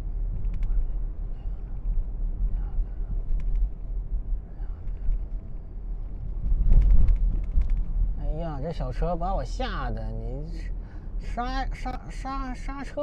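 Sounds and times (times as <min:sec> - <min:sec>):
car engine and tyres rumbling: 0:00.0 - 0:13.0.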